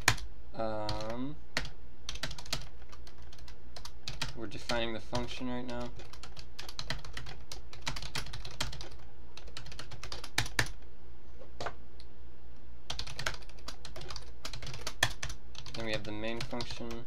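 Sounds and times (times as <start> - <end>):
computer keyboard typing: 0.0 - 10.8, 12.9 - 17.0
faint low hum: 0.0 - 17.0.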